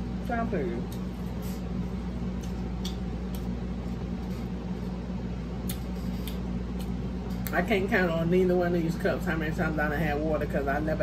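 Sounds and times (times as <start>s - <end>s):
low room hum: 0.0s - 11.0s
mouth clicks from chewing: 5.6s - 7.5s.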